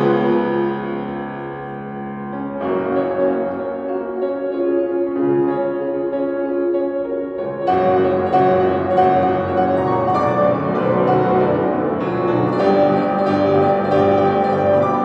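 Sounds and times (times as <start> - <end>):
grand piano classical piece: 0.0 - 15.0.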